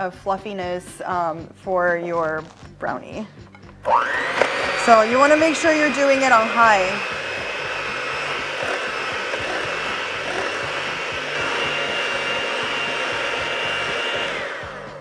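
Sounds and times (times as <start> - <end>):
electric hand mixer whine: 3.8 - 15.0.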